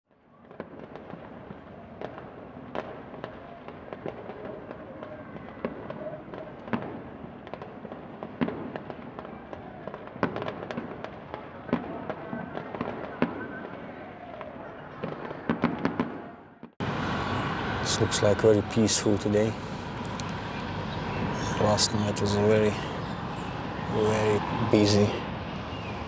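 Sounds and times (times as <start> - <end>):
city background noise: 0.1 - 26.0
distant fireworks popping and banging: 0.3 - 26.0.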